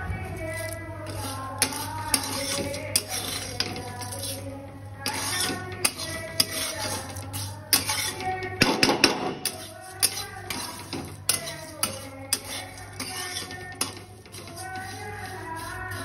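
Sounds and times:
metal spatula scraping a pan: 0.6 - 16.0.

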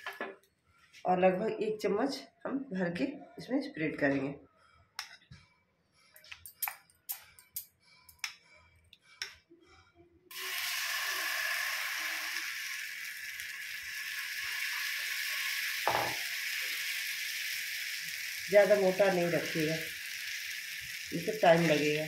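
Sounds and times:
batter sizzling on hot griddle: 10.3 - 22.0
knock: 15.9 - 16.2.

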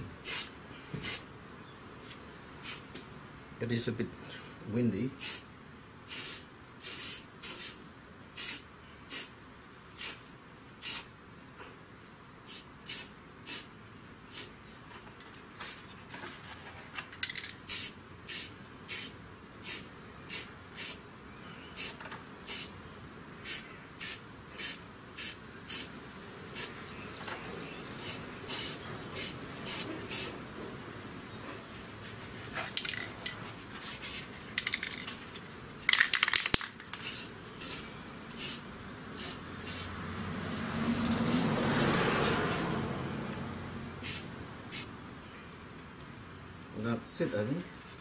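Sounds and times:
spray paint hissing bursts: 0.2 - 1.3, 2.6 - 2.9, 5.2 - 9.4, 10.0 - 10.2, 10.8 - 11.1, 12.4 - 13.7, 14.3 - 14.6, 17.6 - 21.0, 21.8 - 22.8, 23.4 - 25.9, 26.5 - 26.8, 28.0 - 30.4, 36.2 - 39.9, 40.9 - 42.7, 44.0 - 44.9.

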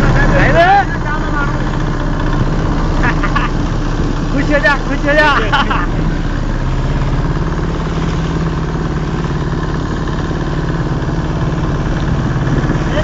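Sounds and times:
small boat motor running: 0.0 - 13.0
water splashing along hull: 0.0 - 13.0.

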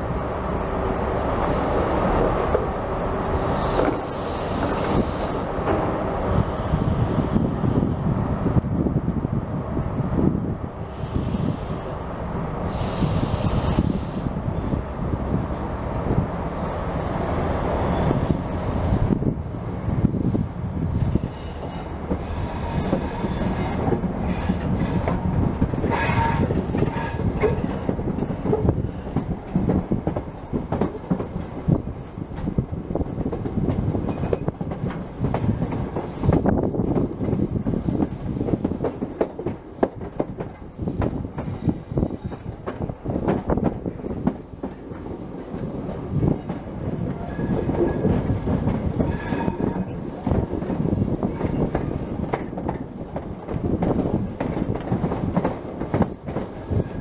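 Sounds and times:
train rumble and rushing air: 0.0 - 57.0
wheels clattering over rail joints: 21.1 - 31.4
wheel squeals: 25.8 - 27.6, 49.0 - 50.0.

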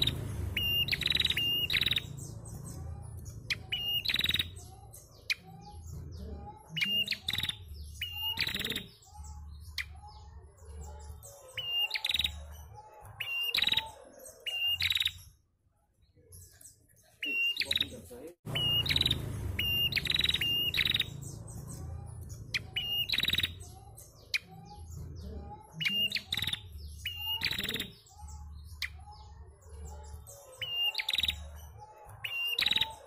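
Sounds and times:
songbird piping and trilling: 0.0 - 15.4, 16.4 - 33.0.

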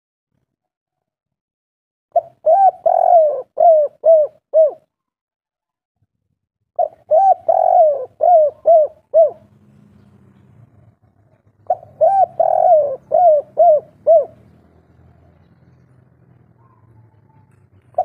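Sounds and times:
dove cooing: 2.2 - 4.9, 6.8 - 9.6, 11.2 - 14.6, 16.4 - 18.0.

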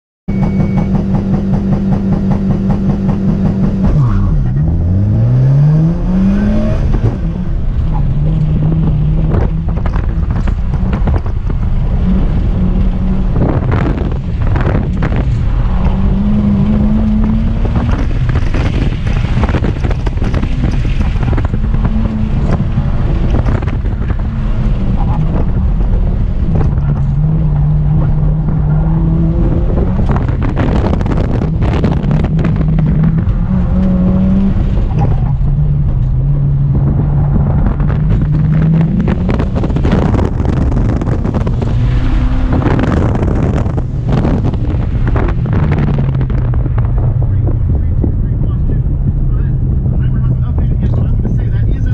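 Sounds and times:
car engine revving: 0.3 - 51.9.

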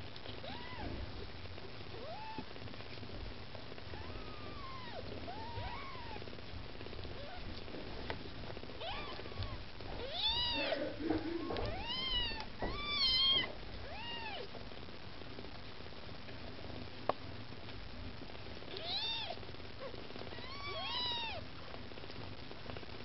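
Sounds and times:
kittens mewing: 8.8 - 14.5, 20.3 - 21.4.

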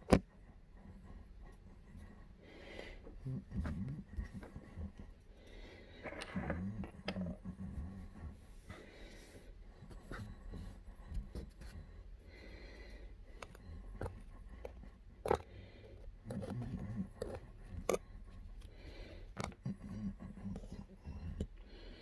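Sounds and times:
close-up rubbing and scraping: 0.0 - 22.0.

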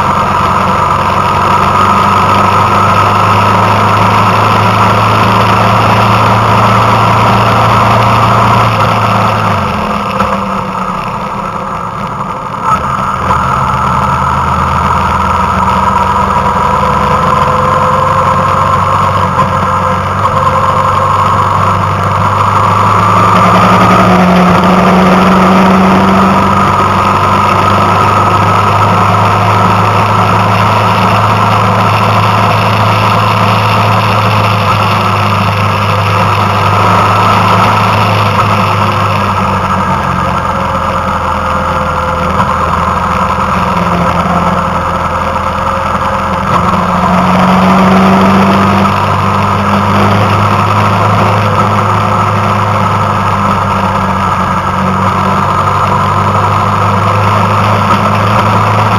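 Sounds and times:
vehicle engine running while driving: 0.0 - 58.9.

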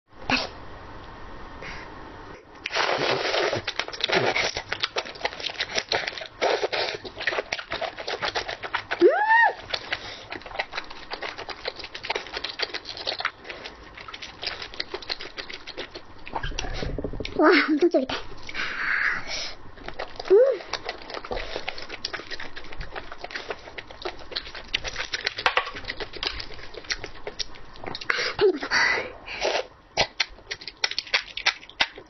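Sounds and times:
chewing octopus wet clicks: 3.6 - 9.0, 9.6 - 17.4, 19.8 - 28.2, 30.0 - 32.0.

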